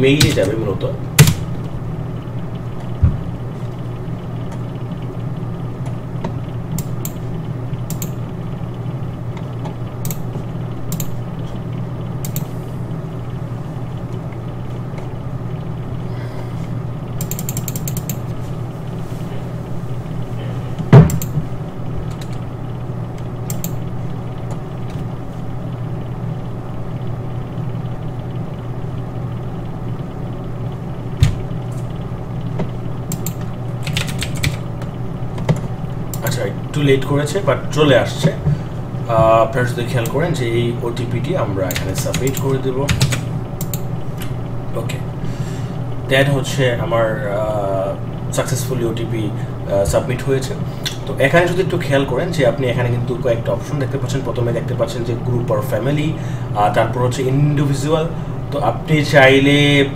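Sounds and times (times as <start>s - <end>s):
steady low hum: 0.0s - 59.9s
computer mouse clicks: 7.9s - 8.2s, 9.6s - 10.3s, 10.9s - 11.2s, 12.2s - 12.5s, 17.2s - 18.2s, 21.1s - 21.4s, 23.5s - 23.8s, 32.6s - 34.6s, 41.7s - 43.9s.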